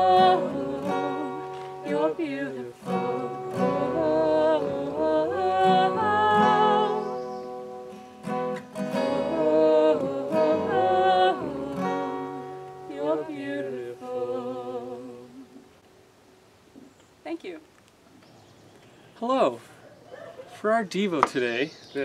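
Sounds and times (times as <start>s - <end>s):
voices singing: 0.0s - 7.8s, 8.8s - 15.8s
acoustic guitar strumming: 0.0s - 15.7s.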